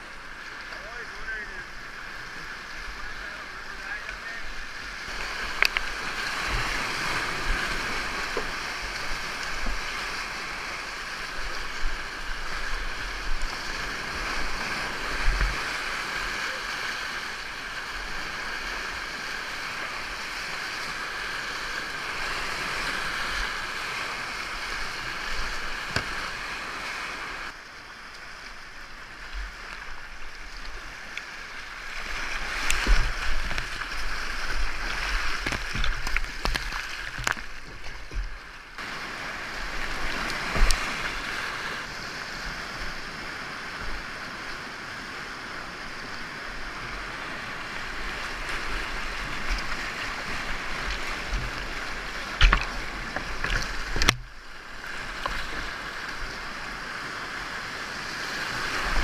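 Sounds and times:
whitewater rushing: 0.0s - 27.6s, 28.8s - 59.0s
dull knocks and splashes: 32.7s - 38.4s, 52.4s - 54.3s.

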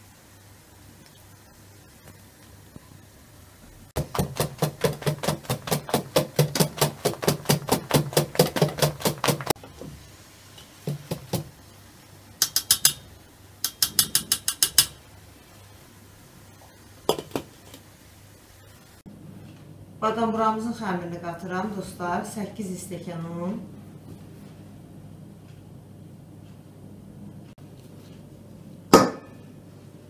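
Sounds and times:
whisk clattering in metal bowl: 4.0s - 9.5s, 12.4s - 15.0s.

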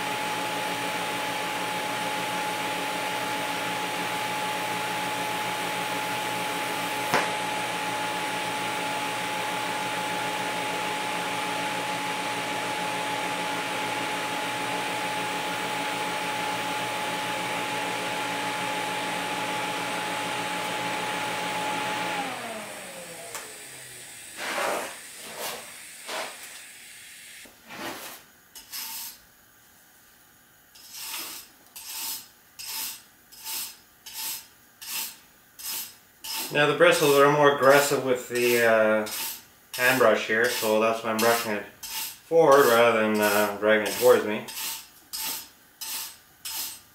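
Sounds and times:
welding arc hiss and whine: 0.0s - 0.3s, 4.1s - 11.2s, 22.7s - 46.9s
brush scrubbing metal: 24.4s - 26.5s, 27.6s - 29.2s, 30.8s - 46.9s.

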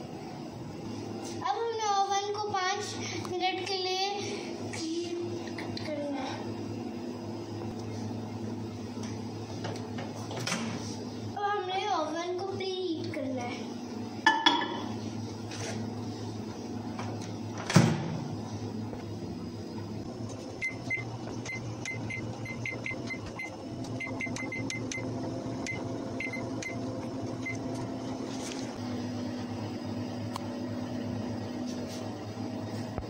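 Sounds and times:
oven humming: 0.0s - 33.0s
oven door shutting: 17.0s - 18.4s.

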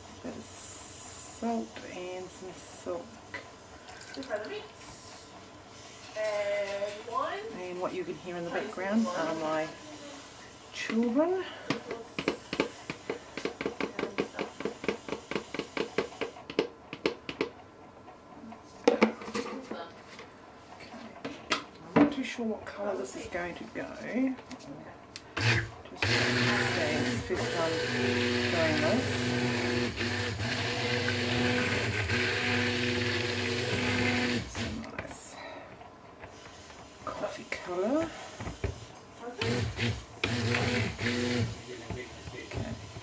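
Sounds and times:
stick blender motor humming: 1.2s - 17.5s, 25.2s - 43.0s.

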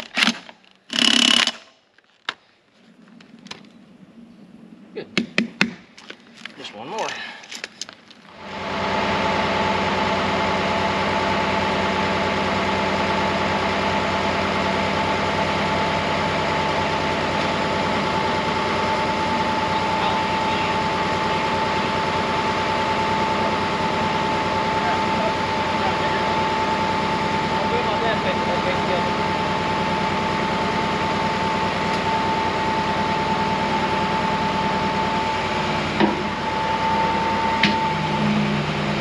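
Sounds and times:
constant whine: 0.0s - 39.0s
tractor engine idling: 8.2s - 39.0s.

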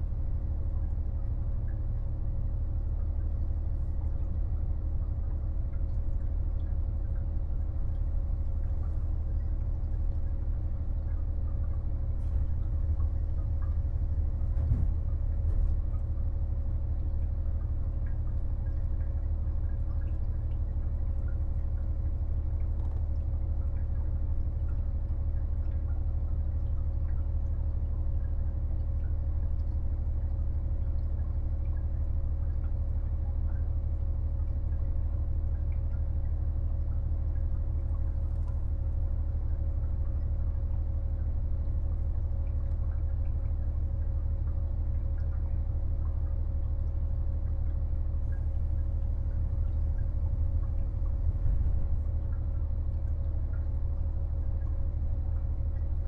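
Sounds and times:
diesel railcar engine drone: 12.2s - 16.3s, 50.2s - 52.4s.

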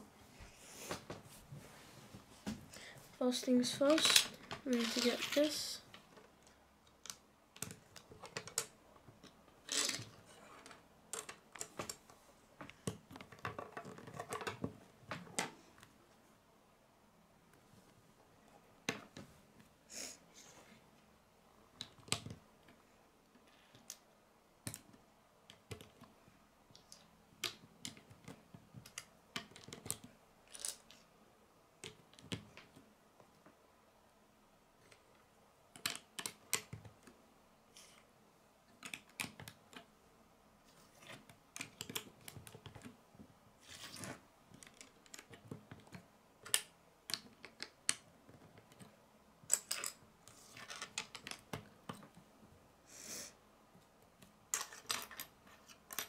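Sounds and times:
plastic bricks clicking together: 3.9s - 5.4s, 26.7s - 31.0s, 35.7s - 37.1s, 38.8s - 39.9s, 44.6s - 48.9s, 49.5s - 52.1s.

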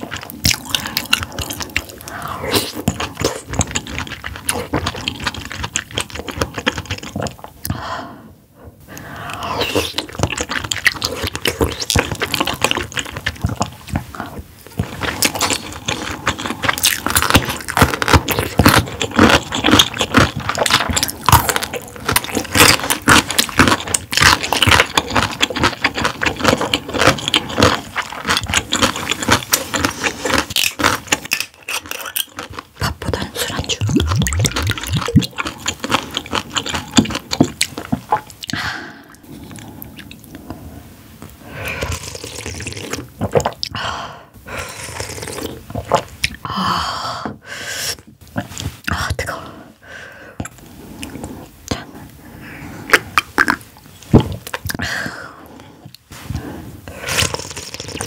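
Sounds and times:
wet chewing and mouth smacks: 0.0s - 7.8s, 9.0s - 40.6s, 44.9s - 46.4s, 50.4s - 52.2s, 52.8s - 54.8s, 57.1s - 58.0s.

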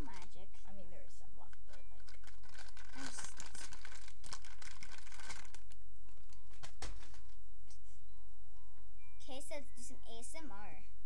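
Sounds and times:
plastic packet crinkling: 0.0s - 0.4s, 1.5s - 7.4s.

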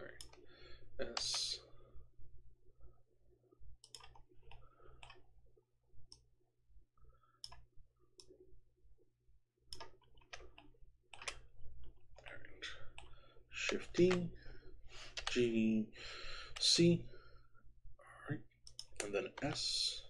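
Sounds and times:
computer mouse clicks: 0.1s - 1.5s, 3.8s - 5.3s, 7.4s - 8.4s, 9.7s - 12.3s, 12.9s - 14.4s, 15.0s - 15.5s, 18.6s - 19.6s
keyboard keys clicking: 3.8s - 5.2s, 9.7s - 11.5s, 15.0s - 15.4s.

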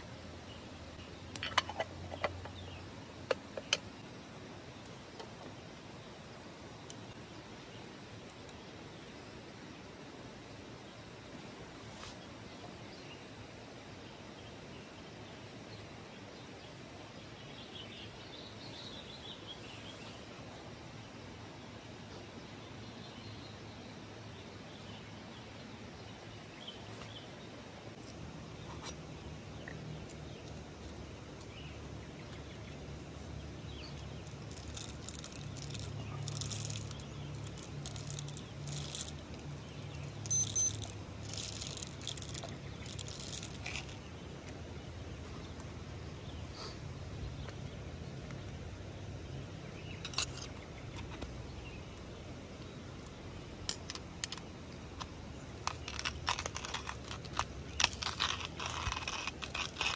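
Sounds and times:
outdoor background noise: 0.0s - 59.9s
coffee beans rattling into grinder: 34.0s - 44.0s, 55.6s - 59.9s.

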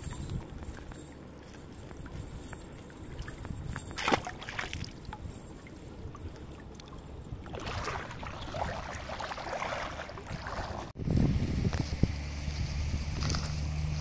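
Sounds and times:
water splashing around wading legs: 0.0s - 11.0s.

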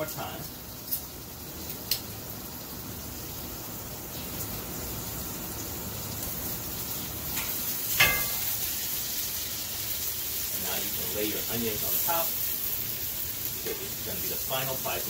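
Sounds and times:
steaks sizzling in a skillet: 0.0s - 15.0s
tongs clinking on pan: 7.3s - 8.7s.

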